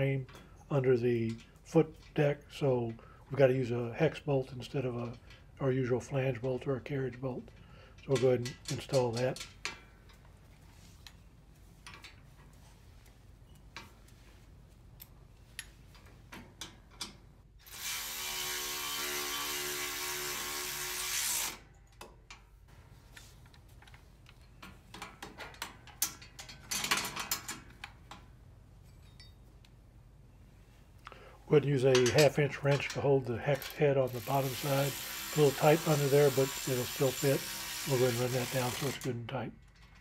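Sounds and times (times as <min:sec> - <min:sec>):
metal parts clinking: 0:24.3 - 0:27.8, 0:31.9 - 0:34.6
ratchet driver motor running: 0:34.1 - 0:39.0.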